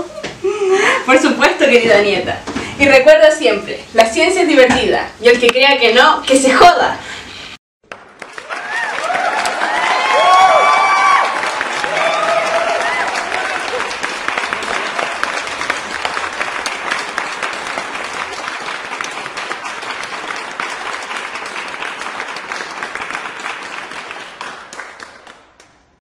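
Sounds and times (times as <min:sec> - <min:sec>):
crowd applauding: 0:07.8 - 0:25.9.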